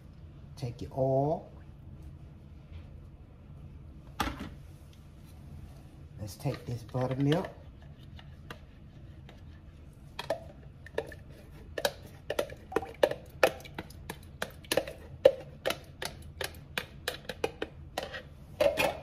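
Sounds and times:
thick liquid pouring and plopping: 12.6s - 14.1s.

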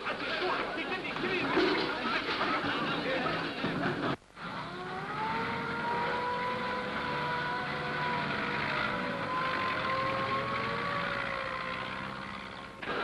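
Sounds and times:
truck engines rumbling: 0.0s - 13.0s
fire engine sirens wailing: 4.4s - 12.8s.

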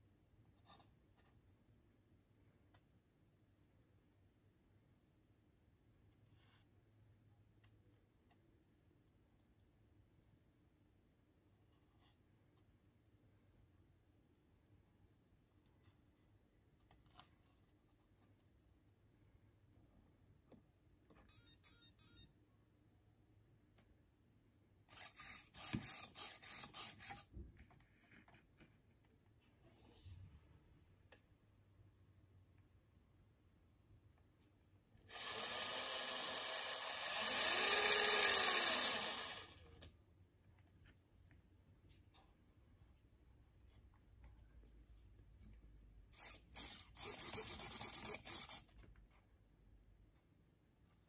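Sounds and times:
high-pitched electronic chirping: 21.3s - 22.3s
electric motor whining: 35.1s - 39.5s.

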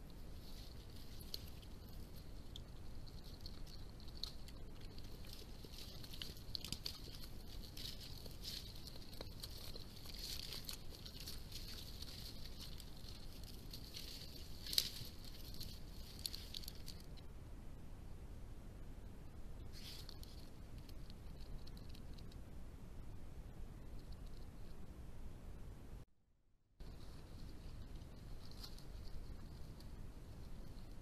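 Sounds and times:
animal rustling through plants: 0.0s - 17.3s, 19.7s - 22.4s, 26.8s - 31.0s.

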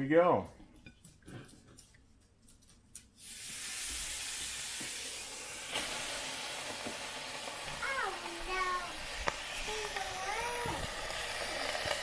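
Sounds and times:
steak sizzling on grill: 3.2s - 12.0s.

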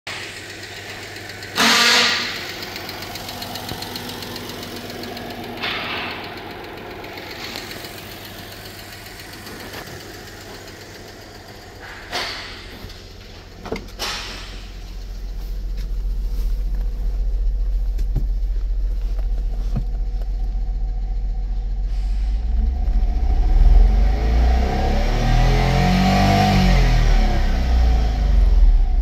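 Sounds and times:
car engine idling: 0.1s - 29.0s
loud short bursts of noise: 1.6s - 2.4s.

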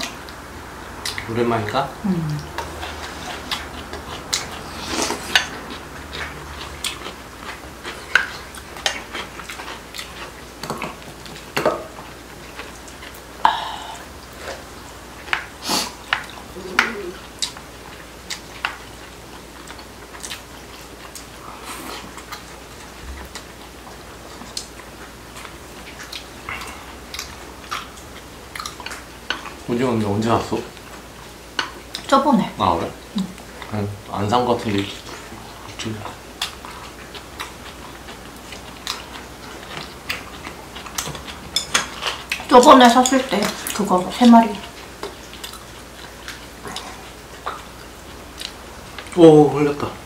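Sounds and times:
chewing: 1.0s - 49.9s.

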